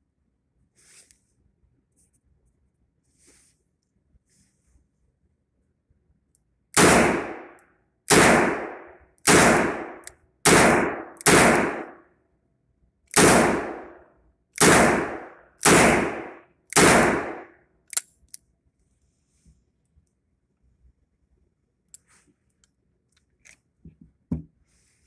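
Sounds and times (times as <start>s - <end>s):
revolver gunshots: 6.8s - 12.0s, 13.2s - 14.0s, 14.6s - 17.6s.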